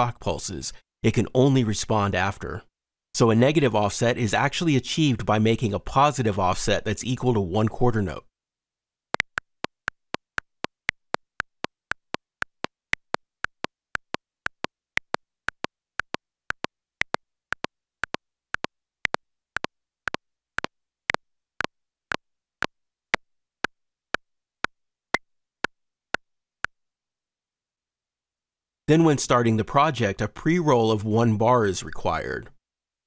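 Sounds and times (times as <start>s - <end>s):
metronome clicks: 9.1s - 21.7s.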